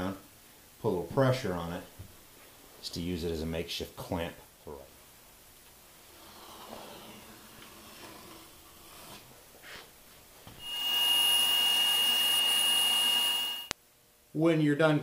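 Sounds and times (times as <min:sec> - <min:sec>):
bandsaw cutting board with whine: 0:06.2 - 0:09.3, 0:10.6 - 0:13.7.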